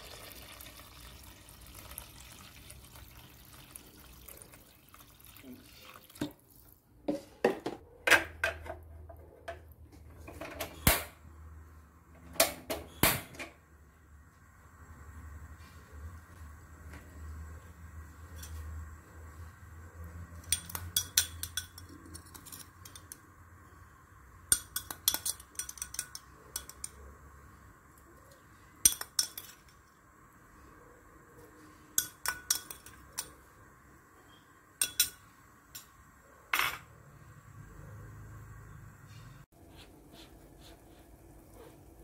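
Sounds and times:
metal spoon clinking on glass bowl: 0:20.4 - 0:23.2, 0:24.5 - 0:27.1, 0:28.8 - 0:29.8, 0:32.0 - 0:33.4, 0:34.8 - 0:35.9
spoon clinking on steel pot: 0:20.4 - 0:23.2, 0:24.5 - 0:27.1, 0:28.8 - 0:29.8, 0:32.0 - 0:33.4, 0:34.3 - 0:35.9.

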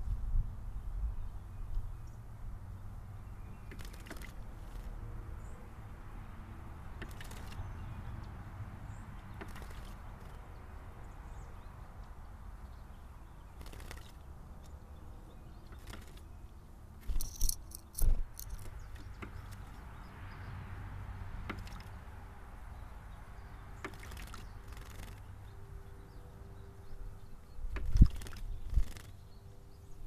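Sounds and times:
low outdoor background: 0:00.0 - 0:30.0
bird wings splashing water: 0:03.7 - 0:04.9, 0:07.0 - 0:07.6, 0:09.4 - 0:10.4, 0:13.6 - 0:14.2, 0:21.5 - 0:22.0, 0:23.8 - 0:25.2, 0:27.8 - 0:29.1.

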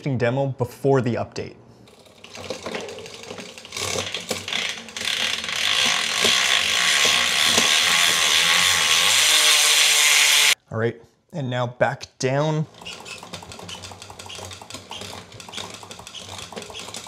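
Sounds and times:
bicycle chain whirring: 0:01.8 - 0:10.6, 0:12.7 - 0:17.0.

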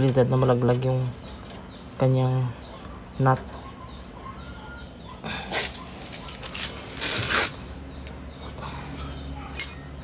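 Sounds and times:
metal tools scraping: 0:05.6 - 0:10.0
sharp metallic clink: 0:08.4 - 0:10.0.

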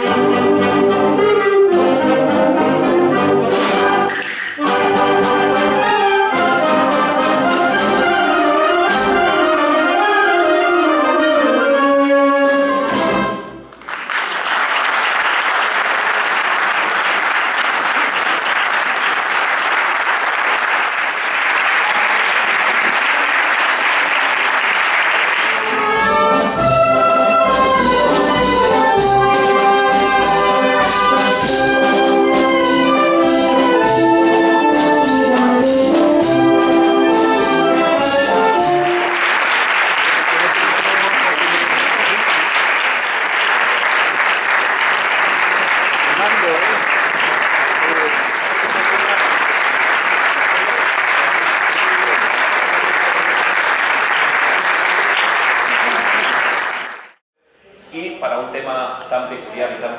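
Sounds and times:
wind band playing: 0:00.0 - 0:13.6, 0:24.7 - 0:46.0
audience applause: 0:13.7 - 0:26.4, 0:38.5 - 0:57.2.

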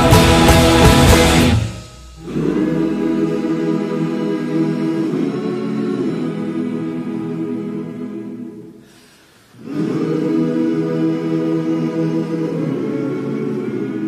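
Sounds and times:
music of long held chords: 0:00.0 - 0:04.7.

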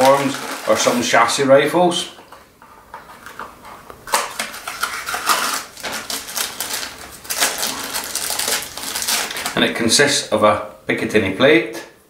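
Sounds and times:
plastic packaging crinkling: 0:00.0 - 0:01.5, 0:02.8 - 0:09.9.

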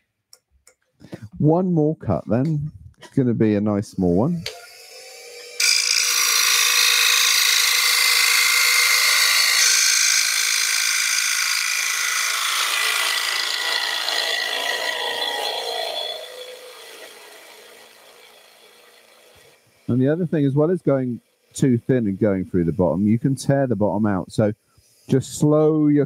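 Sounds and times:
lathe gouge hissing through wood: 0:04.5 - 0:23.3, 0:24.7 - 0:25.9.

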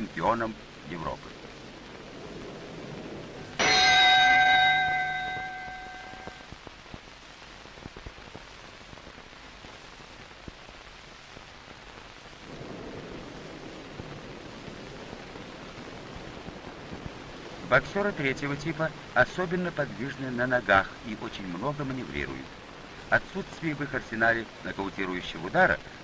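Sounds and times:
steady hiss with ticks: 0:00.0 - 0:26.0
boxing ring bell: 0:03.6 - 0:06.4.

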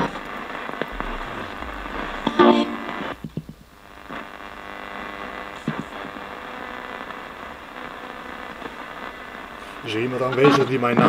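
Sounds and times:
radio static hiss: 0:00.0 - 0:11.0
radio blips: 0:00.9 - 0:03.3
low hum: 0:00.9 - 0:04.7.

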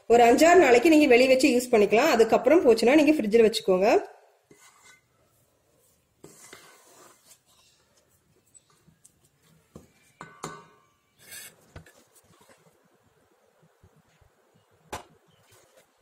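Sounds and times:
spatula scraping steel bowl: 0:04.5 - 0:05.4, 0:06.2 - 0:07.8, 0:11.2 - 0:11.7.

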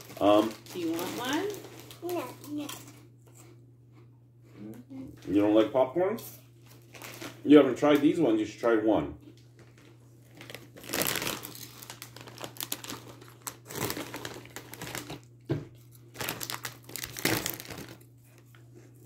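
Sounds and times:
plastic snack bag crinkling: 0:00.0 - 0:03.5, 0:06.6 - 0:08.0, 0:09.5 - 0:18.6.

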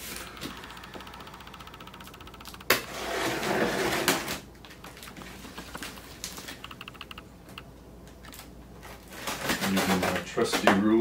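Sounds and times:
tape and cardboard crackling: 0:02.7 - 0:06.6, 0:08.0 - 0:11.0
packing tape ripping off cardboard: 0:09.0 - 0:10.2.

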